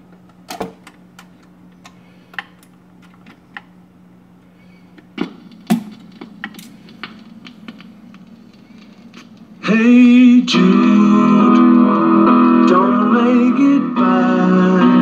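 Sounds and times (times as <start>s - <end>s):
record crackle and pops: 0.0s - 11.7s
low hum: 2.6s - 15.0s.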